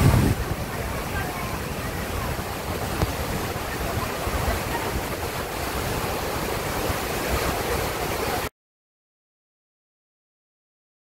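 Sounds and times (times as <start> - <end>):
wind buffeting microphone: 0.0 - 8.1
waterfall rushing: 0.0 - 8.5.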